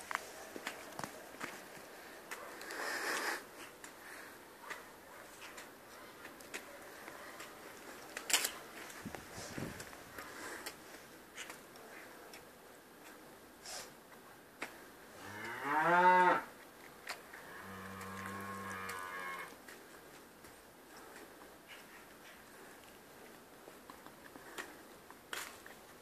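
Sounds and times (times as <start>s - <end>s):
calf mooing: 15.2s - 16.5s, 17.4s - 19.5s.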